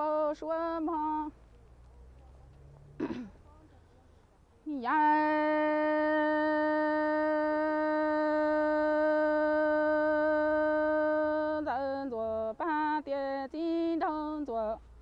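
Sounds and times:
woman singing unaccompanied: 0:00.0 - 0:01.4, 0:04.6 - 0:15.0.

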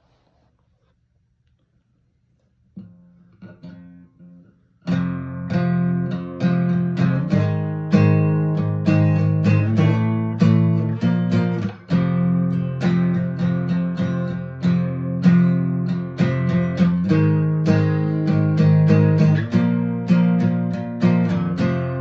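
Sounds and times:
acoustic guitar: 0:02.8 - 0:22.0.

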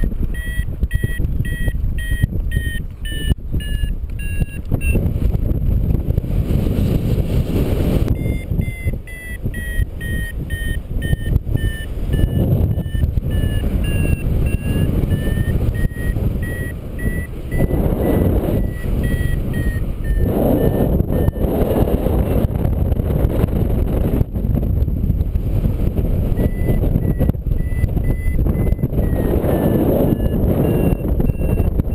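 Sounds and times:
short high beeps: 0:00.0 - 0:05.0, 0:08.1 - 0:21.6, 0:26.3 - 0:31.9
wind buffeting microphone: 0:00.0 - 0:31.9.

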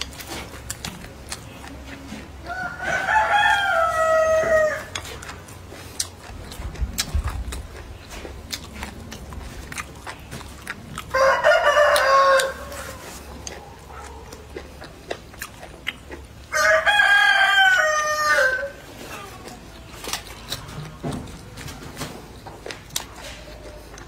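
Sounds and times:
small clicks and eating sounds: 0:00.0 - 0:24.0
rooster crowing: 0:02.4 - 0:05.0, 0:11.1 - 0:13.2, 0:16.5 - 0:18.8.

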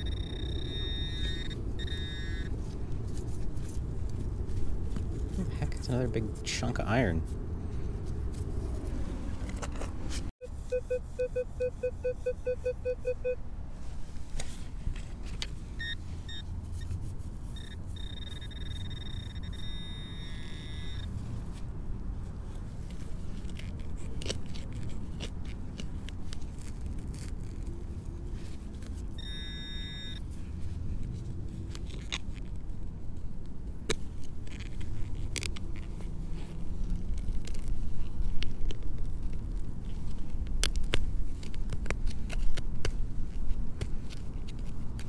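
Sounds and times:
metal detector pulsing low tone: 0:00.0 - 0:02.5, 0:17.6 - 0:21.1, 0:29.2 - 0:30.2
pinpointer high beeps: 0:00.0 - 0:02.5, 0:10.7 - 0:13.4, 0:15.8 - 0:16.4, 0:17.6 - 0:21.1, 0:29.2 - 0:30.2.

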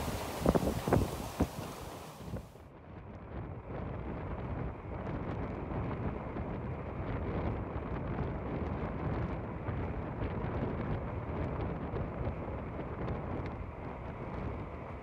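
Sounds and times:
water washing along hull: 0:00.0 - 0:02.5
wind buffeting microphone: 0:00.0 - 0:15.0.

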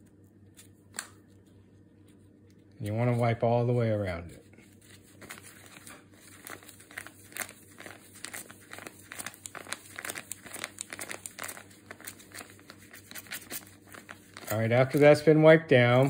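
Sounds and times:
plastic bag crinkling: 0:05.0 - 0:15.2.

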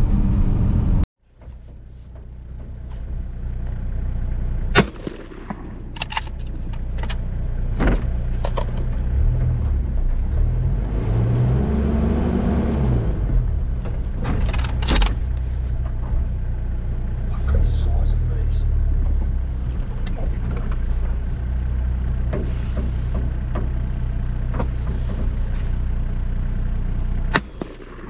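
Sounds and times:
knocks and rattles from bumps: 0:01.3 - 0:03.2, 0:06.1 - 0:11.7, 0:13.1 - 0:16.6, 0:18.8 - 0:25.8
vehicle engine revving: 0:02.2 - 0:28.0.

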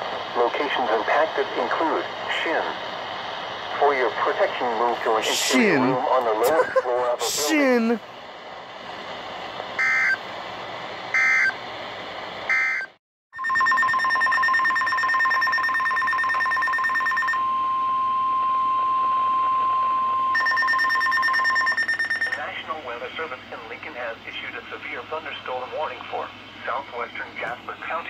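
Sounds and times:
steady warning alarm tone: 0:09.8 - 0:10.2, 0:11.2 - 0:11.6, 0:12.5 - 0:22.5.

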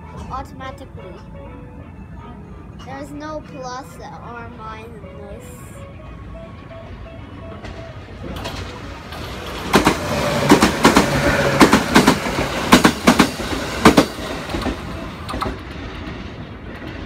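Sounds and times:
passenger train rushing rumble: 0:00.0 - 0:17.0
wheels clattering over rail joints: 0:06.9 - 0:17.0.

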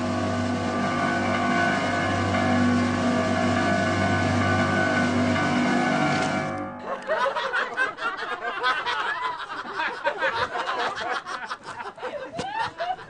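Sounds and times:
group of people laughing: 0:06.8 - 0:13.0.

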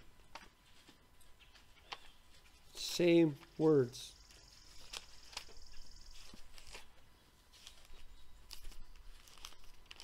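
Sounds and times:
faint high whine: 0:00.0 - 0:10.0
pages turning: 0:04.7 - 0:10.0.

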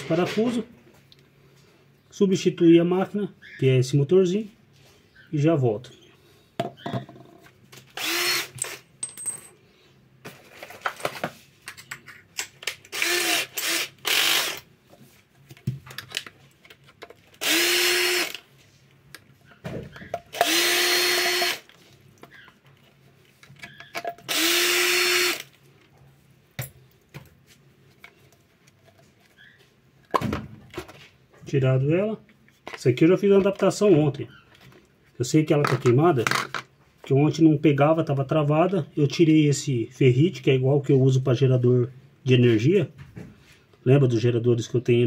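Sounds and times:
cordless screwdriver running: 0:08.0 - 0:08.8, 0:12.9 - 0:14.7, 0:17.4 - 0:18.4, 0:20.3 - 0:21.7, 0:24.3 - 0:25.5
plastic parts clicking and knocking: 0:15.5 - 0:17.4, 0:35.6 - 0:36.7.

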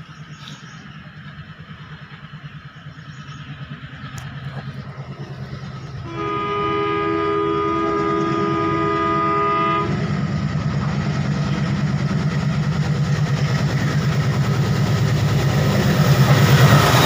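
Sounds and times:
diesel locomotive throbbing: 0:00.0 - 0:17.0
locomotive horn: 0:06.0 - 0:10.3.

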